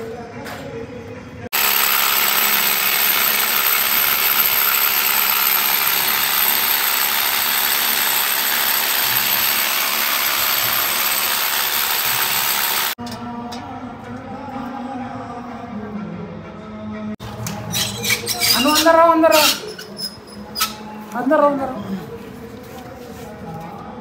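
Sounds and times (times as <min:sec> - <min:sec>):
power drill running: 0:01.5 - 0:13.0.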